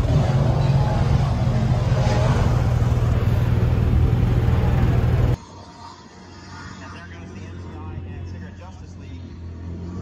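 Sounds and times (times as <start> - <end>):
engine rumbling: 0.0 - 5.4.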